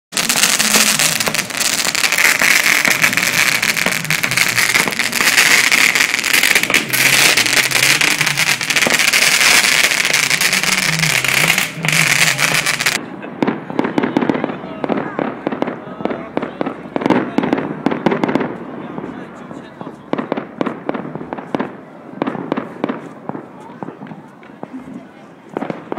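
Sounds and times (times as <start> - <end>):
firework hissing and crackling: 0.1 - 13.5.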